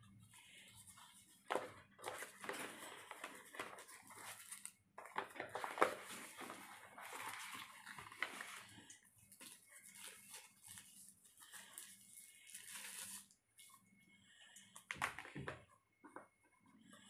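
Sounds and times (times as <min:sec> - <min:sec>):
paper and cardboard rustling: 0:00.4 - 0:13.3.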